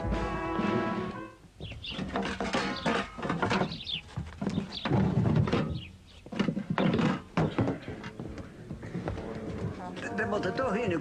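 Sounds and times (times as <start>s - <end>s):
indistinct background noise: 0.0s - 11.0s
dull thuds and knocks: 1.6s - 9.8s.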